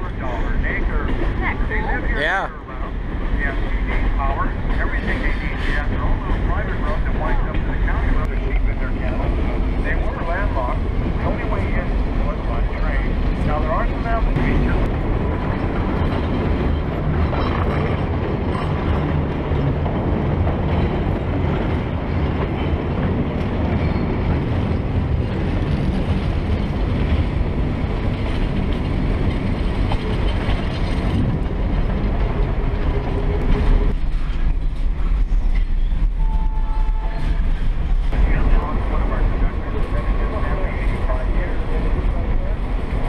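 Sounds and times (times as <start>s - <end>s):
passenger train running on track: 0.0s - 43.0s.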